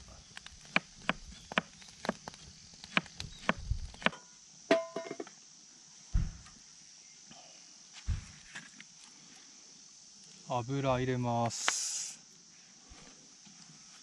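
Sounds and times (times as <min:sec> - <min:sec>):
frying pan clanging on metal stove: 0:04.7 - 0:05.2
dull thump: 0:06.1 - 0:06.6, 0:08.0 - 0:08.4.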